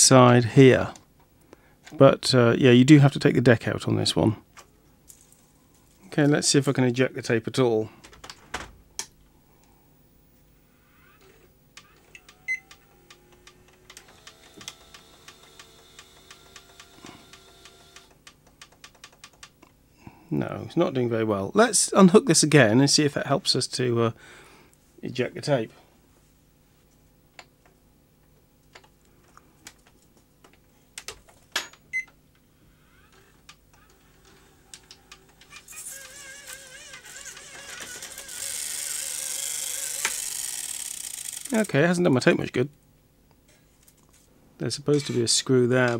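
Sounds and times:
faint motor whine: 0:09.2 - 0:18.7, 0:31.9 - 0:42.8
tape deck hiss: 0:09.6 - 0:19.6, 0:33.1 - 0:42.8.

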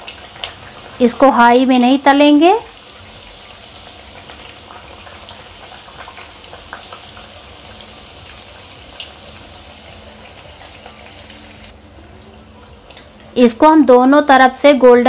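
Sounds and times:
deep-frying sizzle in hot oil: 0:00.0 - 0:15.0
oil popping: 0:02.7 - 0:13.2.

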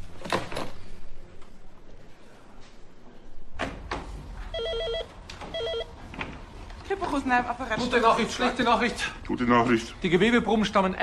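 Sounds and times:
telephone ringing with electronic trill: 0:04.5 - 0:05.9.

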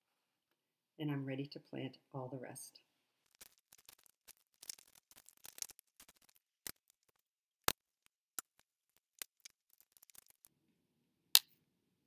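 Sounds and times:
plastic plant pots clicking: 0:03.3 - 0:10.5.

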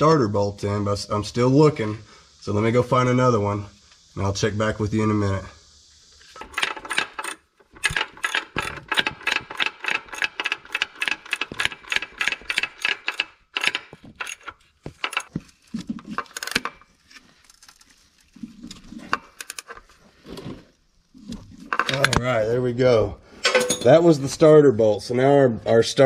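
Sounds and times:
socket ratchet clicking: 0:06.4 - 0:15.3.

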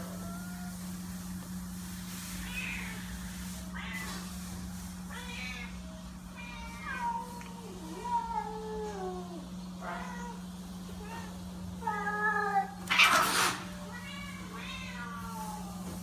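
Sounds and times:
cat yowling and meowing: 0:00.0 - 0:00.9, 0:05.1 - 0:15.8.

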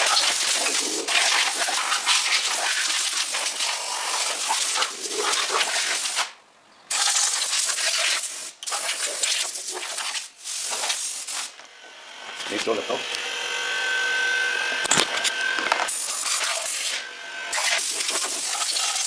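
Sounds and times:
compressed air hissing: 0:06.9 - 0:11.6, 0:15.9 - 0:19.0.

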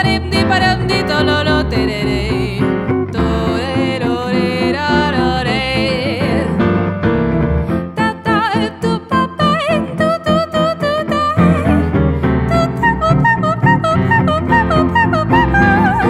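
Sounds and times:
guitar: 0:00.0 - 0:16.0
piano: 0:00.0 - 0:16.0
woman scat-singing: 0:12.5 - 0:16.0.

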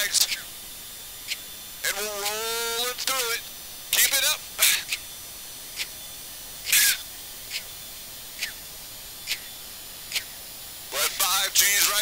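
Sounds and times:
steady intercom hiss: 0:00.0 - 0:00.6, 0:01.8 - 0:05.0, 0:06.6 - 0:07.1, 0:10.8 - 0:12.0.

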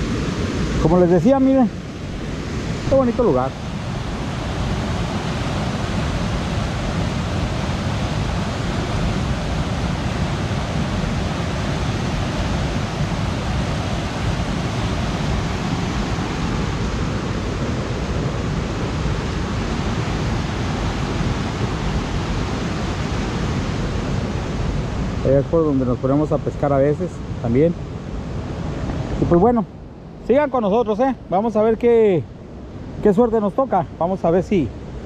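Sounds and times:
water rushing over rocks: 0:00.0 - 0:27.6.

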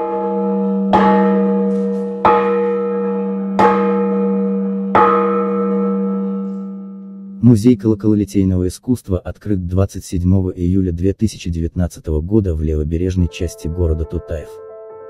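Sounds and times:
large church bell ringing: 0:00.0 - 0:08.7.

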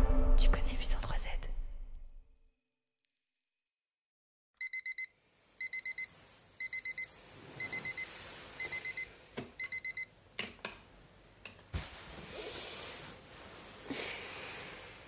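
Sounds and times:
alarm clock beeping: 0:04.6 - 0:10.1.

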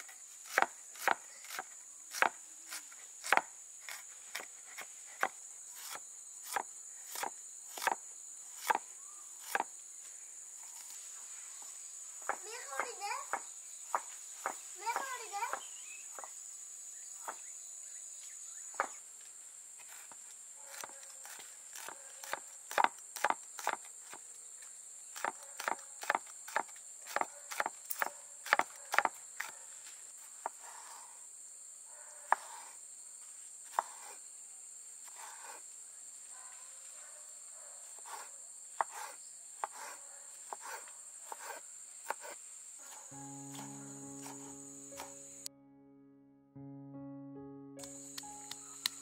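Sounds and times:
insects droning: 0:00.0 - 0:45.5, 0:47.8 - 0:49.0
knife chopping on wooden board: 0:00.4 - 0:08.0, 0:08.6 - 0:08.8, 0:09.4 - 0:09.7, 0:12.2 - 0:16.3, 0:20.7 - 0:24.2, 0:25.2 - 0:29.6, 0:32.3 - 0:32.7, 0:33.7 - 0:34.2, 0:38.0 - 0:42.4.

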